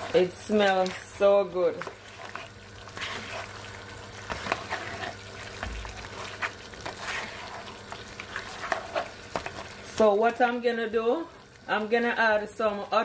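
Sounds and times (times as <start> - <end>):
spatula scraping pan: 0.0 - 10.0
meat sizzling: 0.0 - 10.2.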